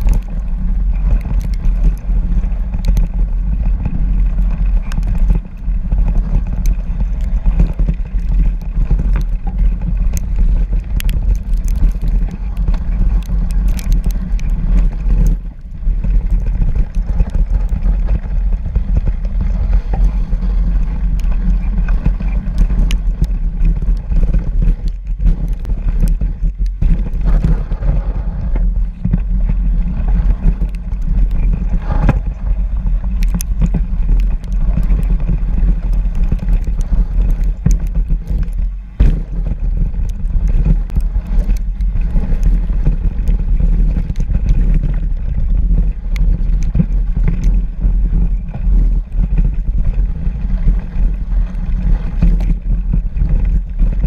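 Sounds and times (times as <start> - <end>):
bike clicks and rattles: 0.0 - 54.0
tyre noise on snow: 0.0 - 54.0
wind buffeting microphone: 0.0 - 54.0.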